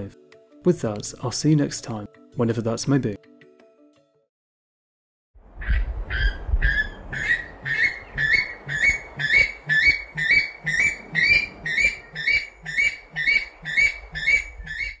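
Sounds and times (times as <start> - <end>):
bird whistled calls: 5.7 - 15.0.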